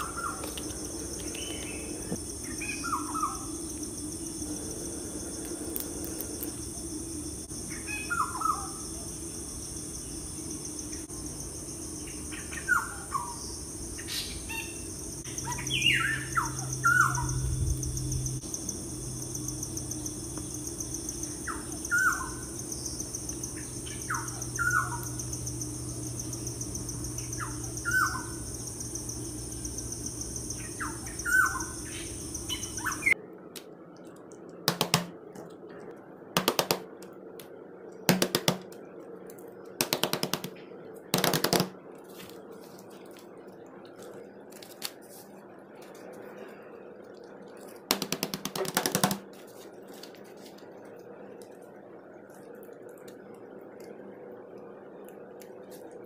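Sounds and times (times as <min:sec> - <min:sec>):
birds chirping: 0:00.0 - 0:03.6, 0:12.0 - 0:18.5, 0:20.8 - 0:33.2
steady high hiss: 0:00.0 - 0:56.0.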